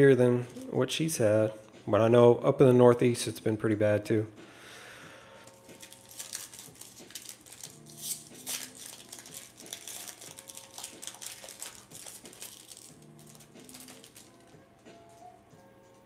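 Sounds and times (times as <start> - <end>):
foil wrapper tearing and crinkling: 5.5 - 14.5.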